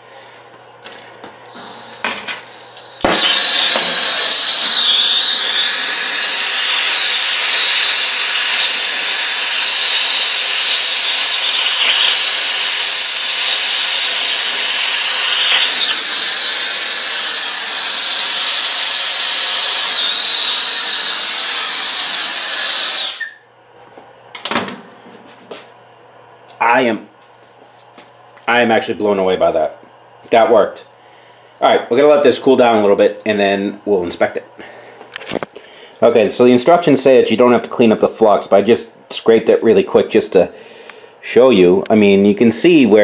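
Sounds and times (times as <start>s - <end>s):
gas torch hissing and whistling: 1.5s - 18.7s.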